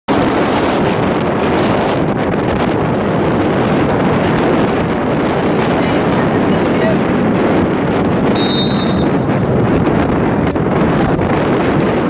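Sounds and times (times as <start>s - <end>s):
wind buffeting microphone: 0.1s - 12.0s.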